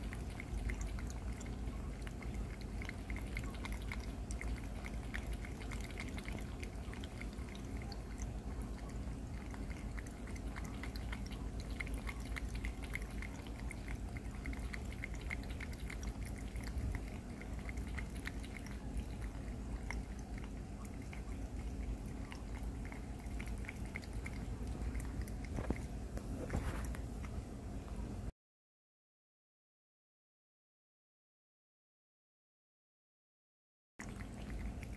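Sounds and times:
water trickling: 0.0s - 27.1s
cat lapping water: 0.0s - 27.6s, 34.0s - 34.9s.

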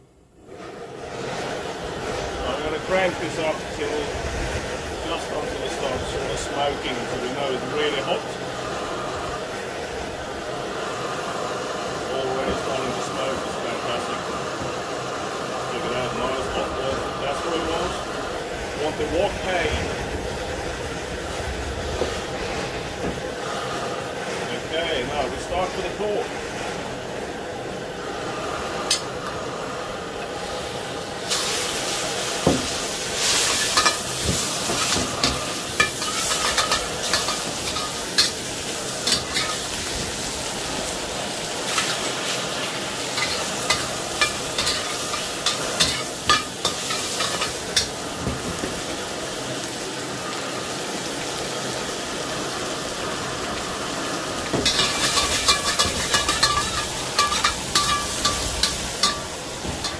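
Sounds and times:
gas burner rushing: 0.0s - 59.9s
meat sizzling in a wok: 26.8s - 59.9s
utensil scraping a wok: 31.3s - 40.9s, 41.5s - 48.6s, 54.4s - 59.9s.

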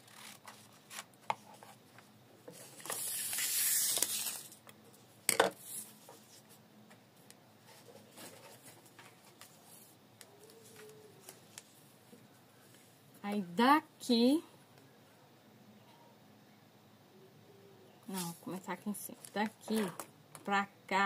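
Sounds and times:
paper rustling: 7.7s - 11.8s.

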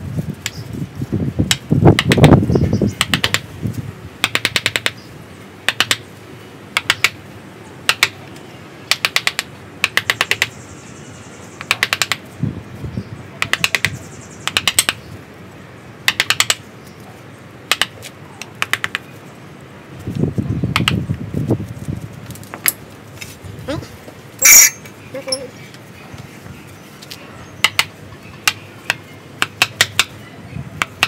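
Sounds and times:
mallet tapping chisel into wood: 3.0s - 3.4s, 4.2s - 5.0s, 8.9s - 10.5s, 16.1s - 16.6s, 17.7s - 18.0s, 18.6s - 19.0s, 27.6s - 30.1s.

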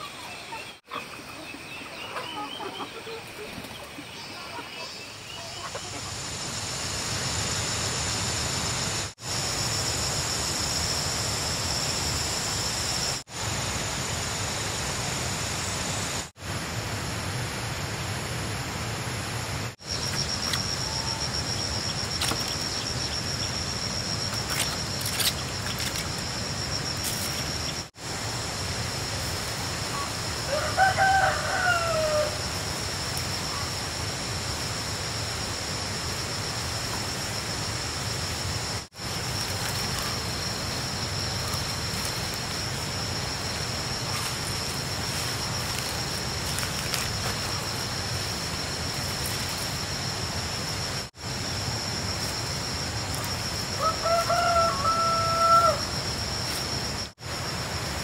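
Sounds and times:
outdoor background hiss: 0.0s - 58.0s
high even whine: 5.0s - 58.0s
rooster crowing: 30.4s - 32.5s, 53.7s - 56.0s.

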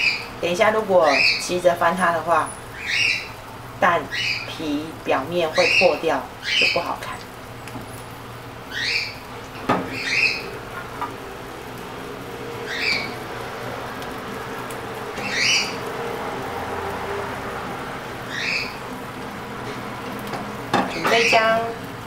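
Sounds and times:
egg pancake sizzling in oil: 5.6s - 22.0s
short rising bird calls: 9.9s - 10.7s, 12.6s - 13.2s, 15.2s - 15.8s.

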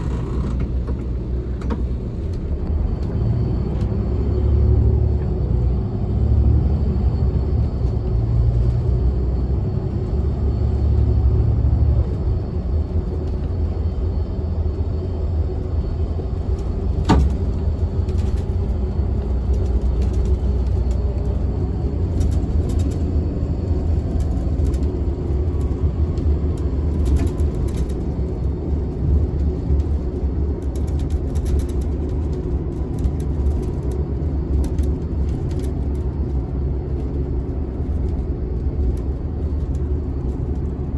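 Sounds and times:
bus engine and road rumble: 0.0s - 40.9s
faint clicks and rattles: 23.9s - 40.9s.

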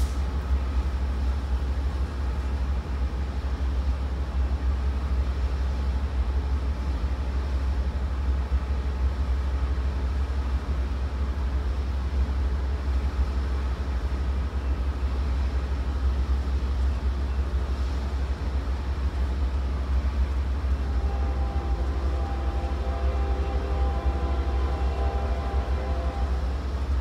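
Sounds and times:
diesel locomotive idling: 0.0s - 27.0s
faint steady tones: 19.2s - 27.0s.

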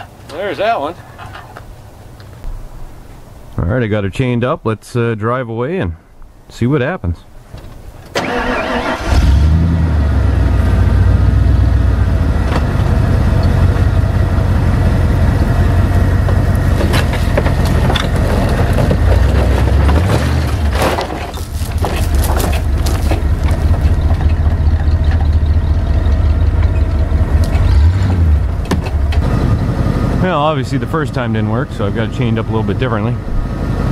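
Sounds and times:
truck engine running hard: 8.2s - 33.9s
metal clanking: 15.1s - 29.3s.

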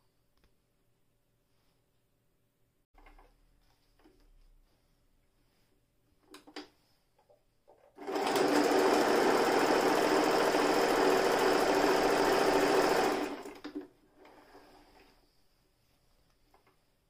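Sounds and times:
sewing machine running: 8.0s - 13.6s.

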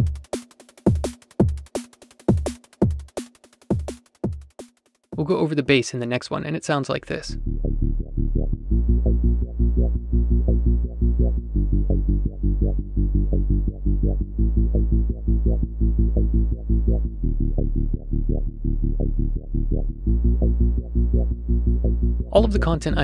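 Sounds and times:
synthesizer bass line: 7.2s - 23.0s.

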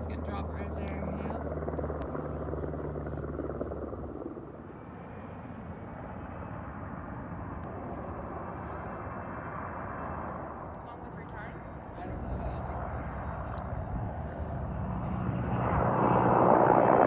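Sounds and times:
helicopter rotor and engine drone: 0.0s - 17.0s
thin high whine: 4.3s - 17.0s.

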